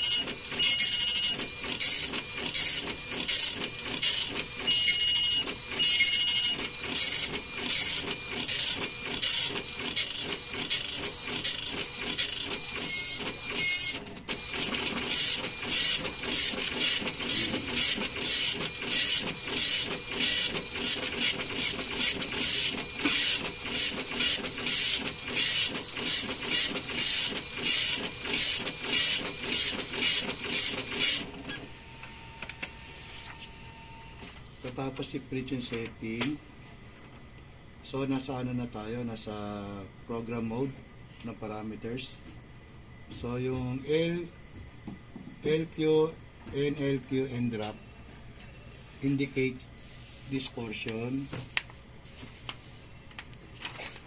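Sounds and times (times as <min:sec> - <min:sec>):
dot matrix printer buzzing: 0:00.0 - 0:32.7.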